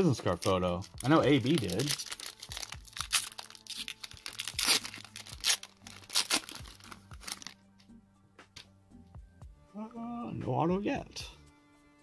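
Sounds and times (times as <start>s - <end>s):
foil pack tearing and crinkling: 0.0s - 7.6s.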